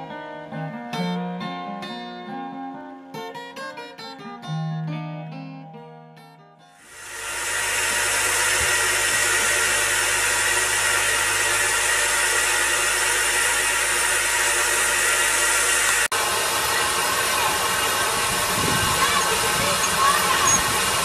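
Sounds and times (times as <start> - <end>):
steam hissing from locomotive: 6.8 - 21.0.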